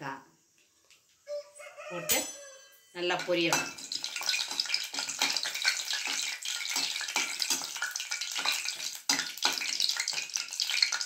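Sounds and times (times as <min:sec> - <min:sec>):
metal spatula scraping a pan: 0:02.1 - 0:11.0
spices sizzling in hot oil: 0:03.0 - 0:11.0.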